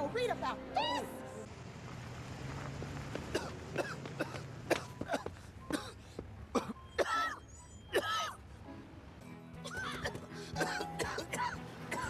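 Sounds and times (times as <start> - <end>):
man coughing: 10.0 - 12.0.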